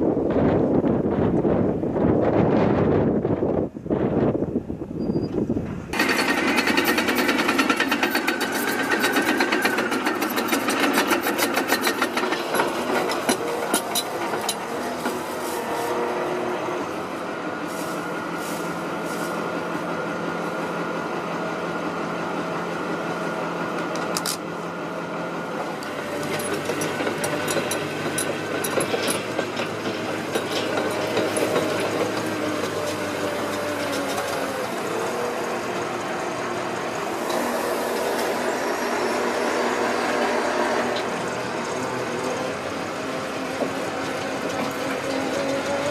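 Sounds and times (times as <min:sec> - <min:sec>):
machine engine humming: 0:05.8 - 0:45.9
clanks and knocks: 0:06.0 - 0:15.3, 0:25.8 - 0:34.5.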